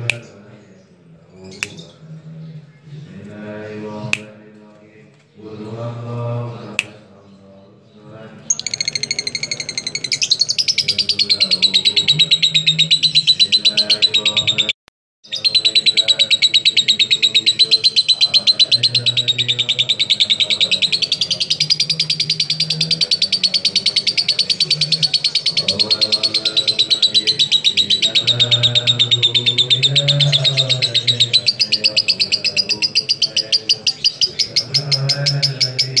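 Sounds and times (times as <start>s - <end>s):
lovebird chattering trill: 8.5s - 36.0s.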